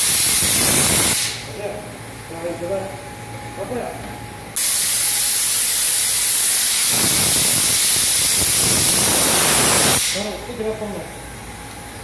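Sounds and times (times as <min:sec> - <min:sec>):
spray gun hissing: 0:00.0 - 0:01.4, 0:04.6 - 0:10.2.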